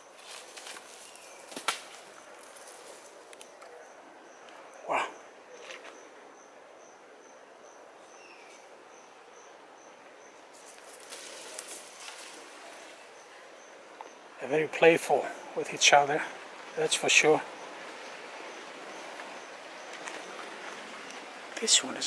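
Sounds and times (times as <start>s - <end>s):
rustling in dry leaves: 0.0s - 3.4s, 10.4s - 13.5s
insect chirping: 0.0s - 14.5s, 15.2s - 22.0s.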